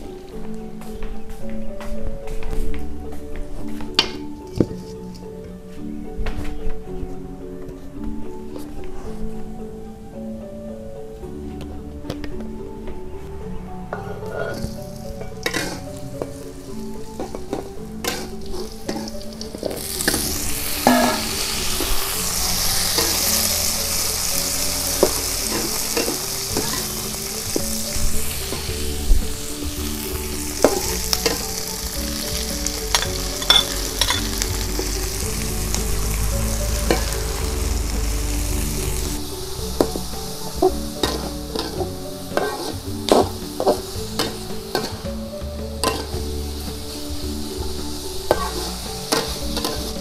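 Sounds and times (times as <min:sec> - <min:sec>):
metal spatula scraping a wok: 0:14.0 - 0:35.2, 0:40.9 - 0:45.0, 0:45.8 - 0:46.8, 0:48.3 - 0:50.0
food sizzling in a wok: 0:14.1 - 0:50.0.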